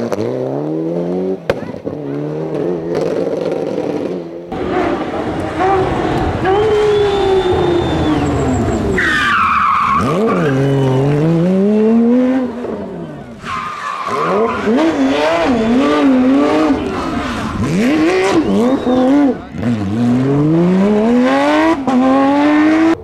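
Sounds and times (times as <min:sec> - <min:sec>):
rally car engine revving: 0:00.0 - 0:23.0
tyre squeal: 0:06.4 - 0:11.4, 0:13.3 - 0:19.4.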